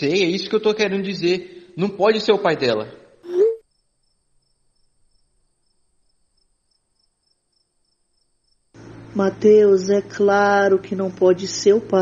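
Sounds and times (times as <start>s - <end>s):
cricket chirping: 3.2s - 9.3s.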